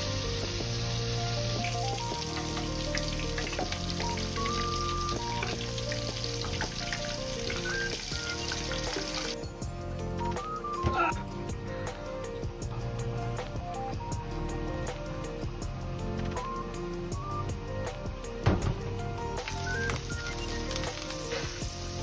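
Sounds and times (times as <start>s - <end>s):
hot oil sizzling and crackling: 0.0s - 9.6s, 19.2s - 22.0s
background music: 0.0s - 22.0s.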